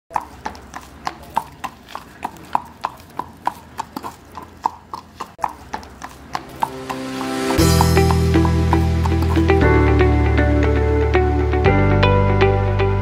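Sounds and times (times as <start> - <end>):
horse hooves clip-clopping: 0.1 - 10.0.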